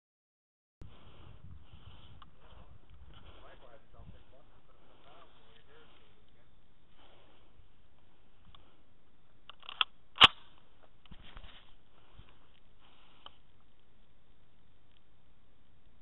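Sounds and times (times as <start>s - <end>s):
rifle clicking: 9.5s - 10.5s
rifle clack: 9.5s - 10.6s
rustling and small knocks: 10.5s - 14.1s.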